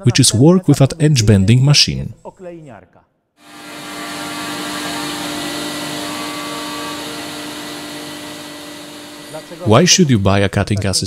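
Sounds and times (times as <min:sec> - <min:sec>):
machine motor hum and whir: 0:03.4 - 0:10.3.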